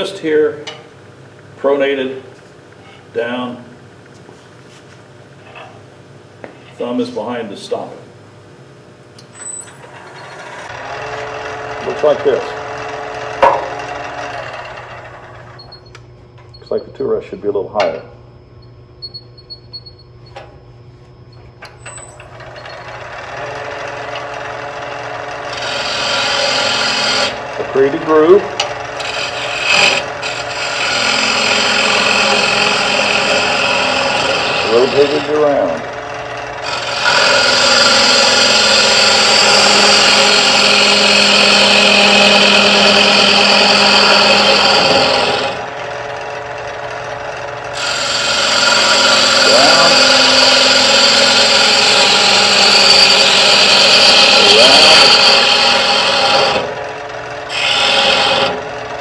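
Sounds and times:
wood lathe humming: 0:09.8 - 0:15.8, 0:21.8 - 0:59.0.

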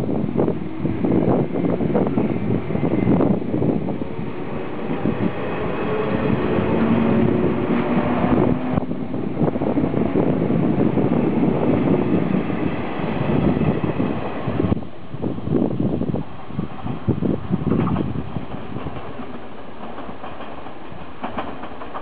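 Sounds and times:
electric train motor hum: 0:00.0 - 0:14.8
wheels rumbling on rails: 0:00.0 - 0:22.0.

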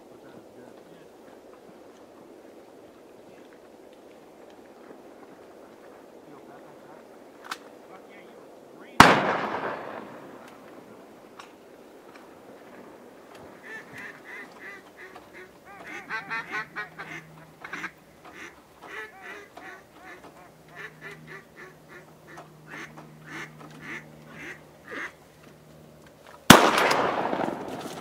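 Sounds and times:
shotgun blast with echo: 0:09.0 - 0:10.6, 0:26.5 - 0:28.0
duck quacking: 0:13.6 - 0:25.3.

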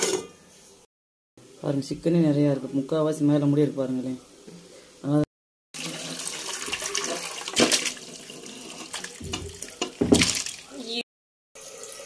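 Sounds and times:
liquid pouring and splashing: 0:05.8 - 0:10.7.

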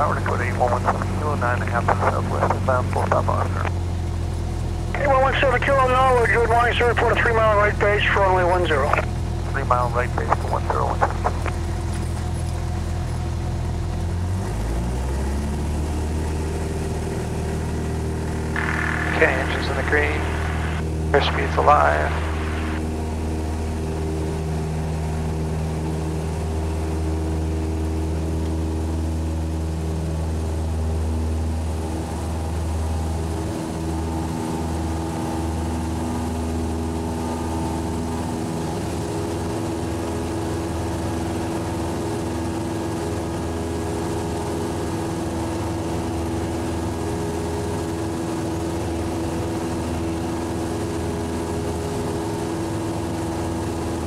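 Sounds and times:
propeller engine drone: 0:00.0 - 0:54.0.

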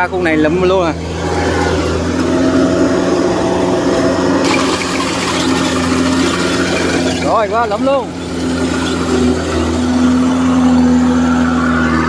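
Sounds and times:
combine harvester engine drone: 0:00.0 - 0:12.0
machinery clatter: 0:04.4 - 0:10.5.

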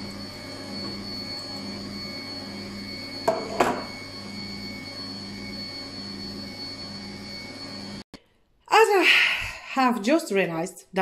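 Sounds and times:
electric stand mixer running: 0:00.0 - 0:08.0.

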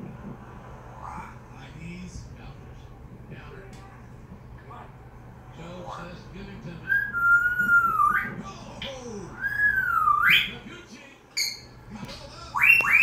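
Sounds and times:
parrot whistling: 0:06.8 - 0:08.4, 0:09.4 - 0:10.6, 0:11.4 - 0:11.7, 0:12.5 - 0:13.0.

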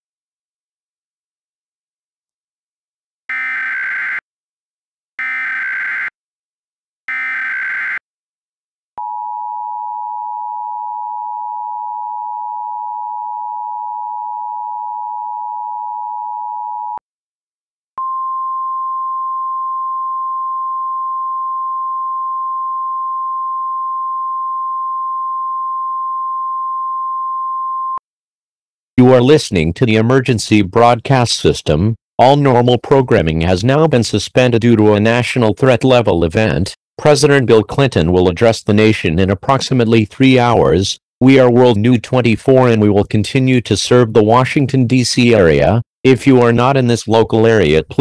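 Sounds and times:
screeching data bursts: 0:03.3 - 0:04.2, 0:05.2 - 0:06.1, 0:07.1 - 0:08.0.

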